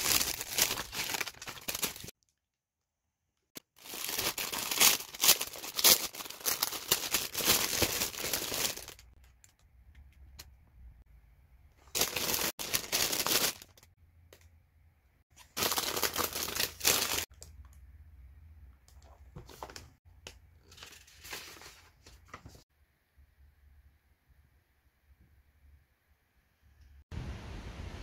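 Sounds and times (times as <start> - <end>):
packaging crinkling: 0.0 - 2.1, 3.8 - 9.5, 11.9 - 13.9, 15.4 - 17.4.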